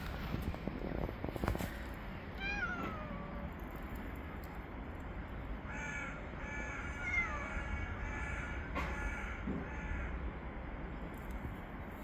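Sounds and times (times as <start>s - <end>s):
low steady rumble: 0.0s - 12.0s
cat meowing: 2.4s - 3.5s, 6.8s - 8.0s.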